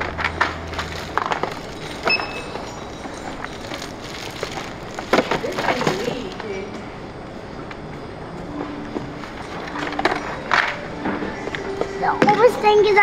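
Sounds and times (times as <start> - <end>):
clatter of items being handled: 0.0 - 6.6, 9.2 - 12.5.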